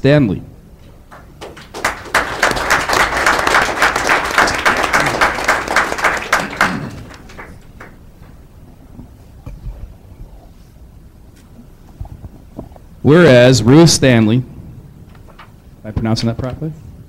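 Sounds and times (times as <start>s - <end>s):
audience applauding: 1.1s - 8.4s.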